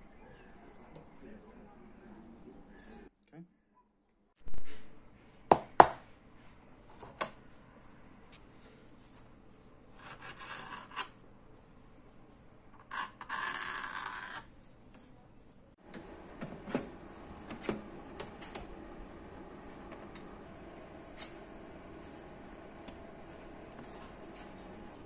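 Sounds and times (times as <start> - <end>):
pen scratching on plastic sheet: 10.0 - 11.1, 12.8 - 14.5.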